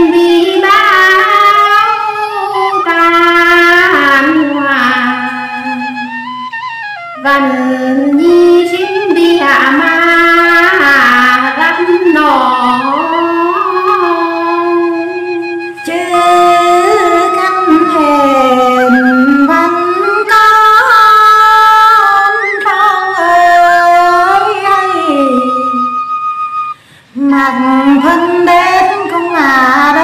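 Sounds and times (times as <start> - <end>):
women singing folk song: 15.8 - 26.0, 27.2 - 30.0.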